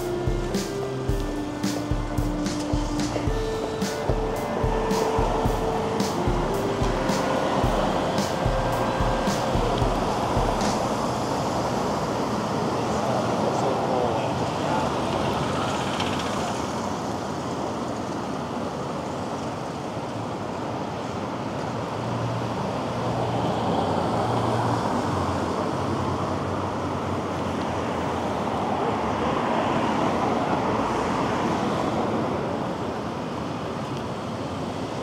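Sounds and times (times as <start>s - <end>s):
low engine hum: 0.0s - 13.1s
city street traffic: 0.0s - 35.0s.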